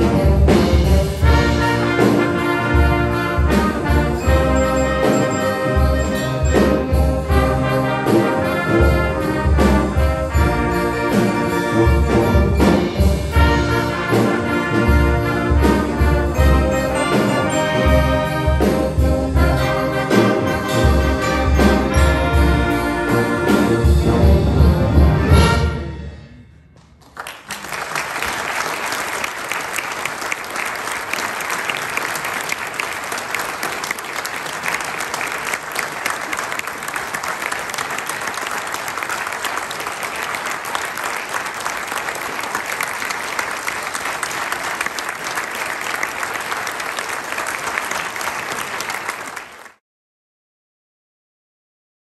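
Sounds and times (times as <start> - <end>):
audience applauding: 1.6 - 7.0, 26.8 - 49.8.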